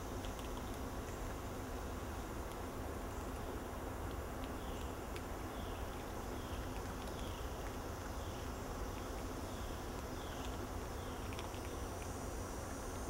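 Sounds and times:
forest background: 0.0s - 13.0s
lemur chewing biscuit crunching: 0.0s - 13.0s.

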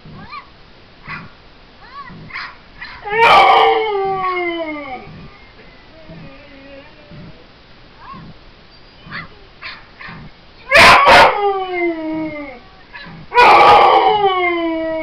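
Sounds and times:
dog barking: 1.1s - 1.3s, 2.2s - 3.4s, 9.1s - 11.4s, 13.0s - 13.8s
dog howling: 2.9s - 7.4s, 10.7s - 15.0s.

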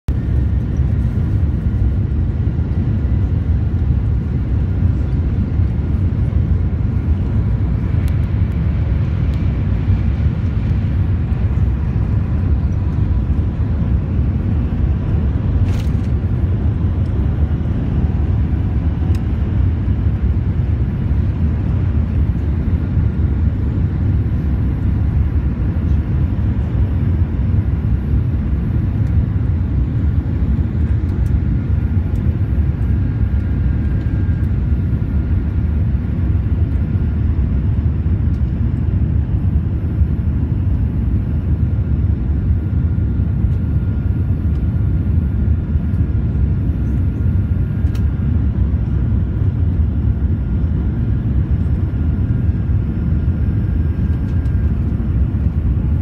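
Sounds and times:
faint steady whine: 0.1s - 56.0s
jet engines rumbling: 0.1s - 56.0s.

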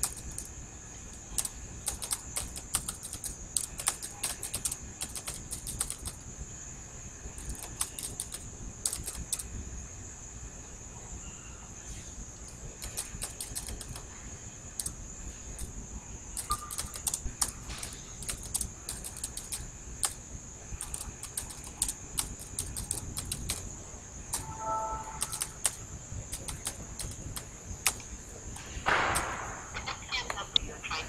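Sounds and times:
keyboard typing: 0.0s - 0.5s, 1.1s - 6.3s, 7.4s - 9.5s, 12.5s - 20.2s, 20.8s - 23.7s, 24.3s - 29.4s.

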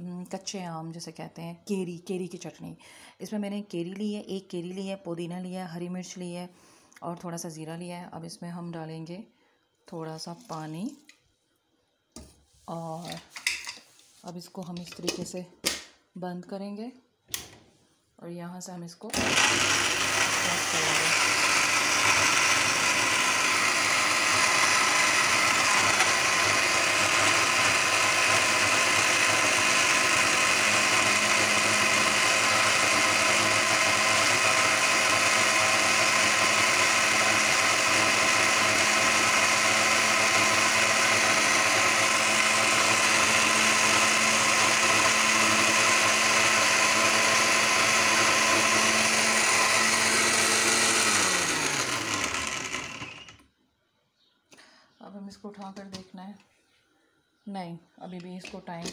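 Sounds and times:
mixer-grinder running: 19.1s - 53.4s.

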